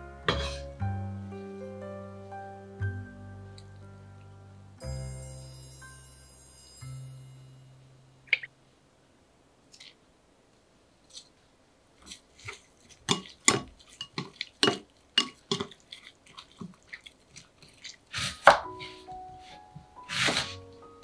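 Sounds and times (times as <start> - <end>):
soft piano music: 0.0 - 8.5, 18.4 - 21.0
rustling noises: 10.6 - 21.0
chopsticks tapping glass bowl: 13.1 - 15.8.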